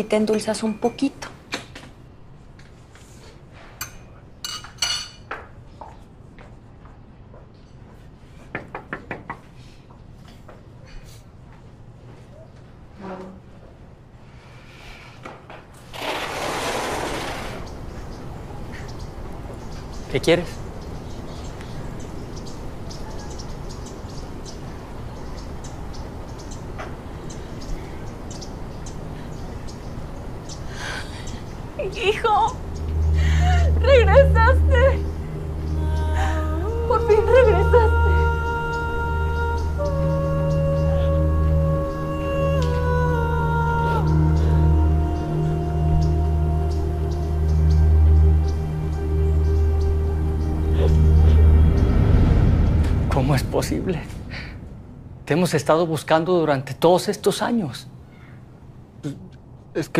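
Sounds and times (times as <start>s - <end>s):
low rumble: 31.6s - 43.2s, 44.4s - 56.5s.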